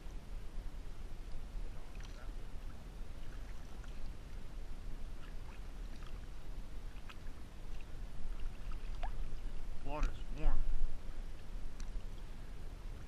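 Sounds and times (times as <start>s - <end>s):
steady low rumble: 0.0s - 13.0s
water sloshing against boat hull: 1.6s - 10.8s
small splashes and drips: 1.8s - 4.4s, 5.2s - 10.2s.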